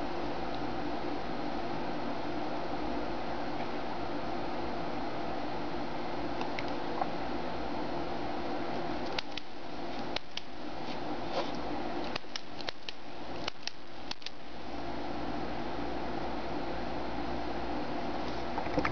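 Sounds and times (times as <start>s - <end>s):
steady background hum: 0.0s - 18.9s
ballpoint pen clicks: 9.1s - 9.5s, 12.1s - 14.4s.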